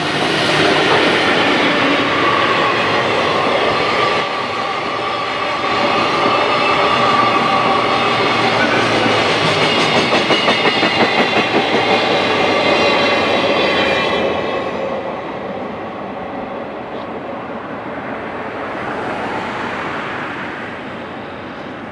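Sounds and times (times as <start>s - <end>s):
freight train wheels clattering: 0.0s - 15.1s
train rushing hiss: 0.0s - 17.5s.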